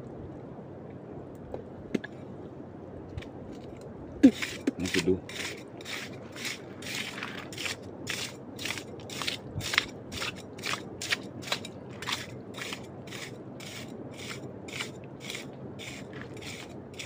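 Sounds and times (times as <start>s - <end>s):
footsteps crunching on dry ground: 6.2s - 7.8s.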